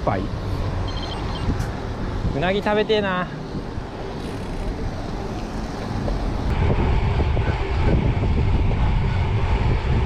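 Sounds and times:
wind buffeting microphone: 3.4 - 10.0.

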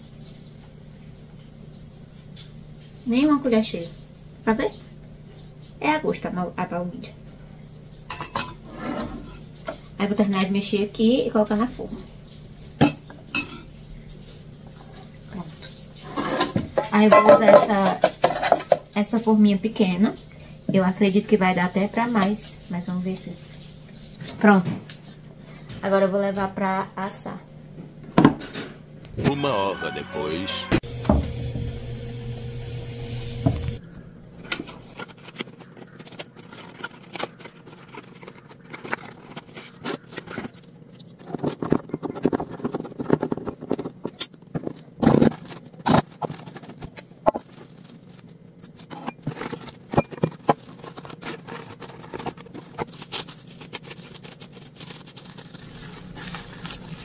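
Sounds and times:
plastic cling film rustling: 13.9 - 25.7, 34.4 - 57.0.

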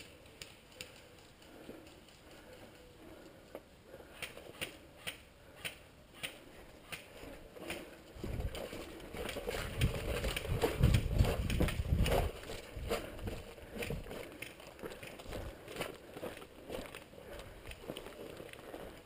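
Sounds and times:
footsteps on gravel: 7.2 - 19.0
wind rumbling on microphone: 8.1 - 14.2.

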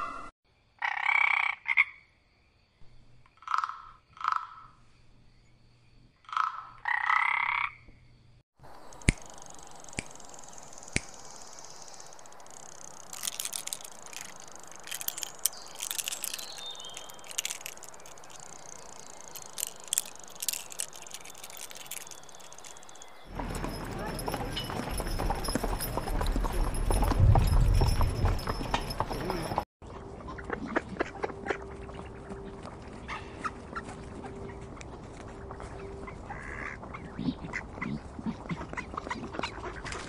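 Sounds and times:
frog croaking: 3.4 - 4.8, 6.2 - 7.9
sharp clicks: 8.6 - 23.2
crackling and ticking: 8.6 - 25.6.

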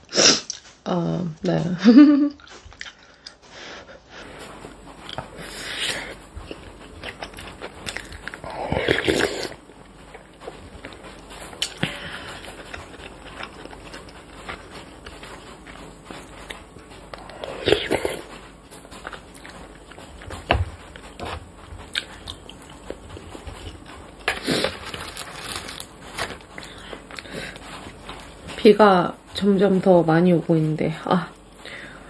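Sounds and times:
person chewing with wet mouth noises: 2.4 - 3.4, 4.7 - 28.6.

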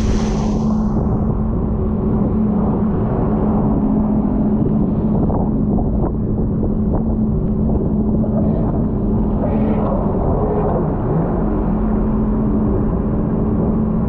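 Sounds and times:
water spray: 0.0 - 1.0
wind buffeting microphone: 0.0 - 11.6.

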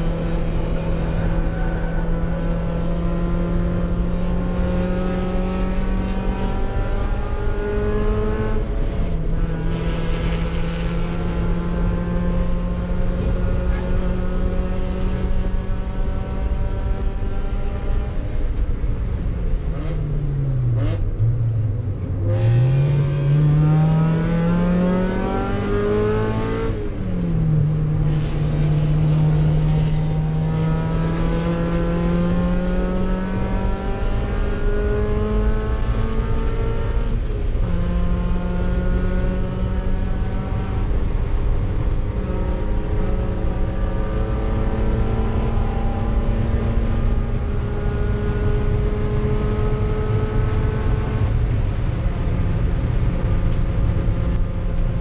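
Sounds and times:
race car engine revving: 0.0 - 18.7, 19.5 - 55.0.

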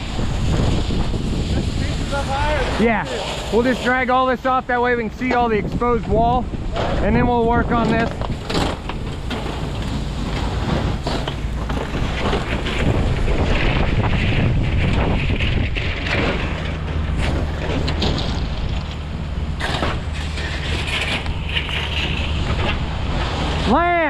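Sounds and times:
wind buffeting microphone: 0.0 - 24.0
handling knocks and rustles: 6.7 - 23.6.

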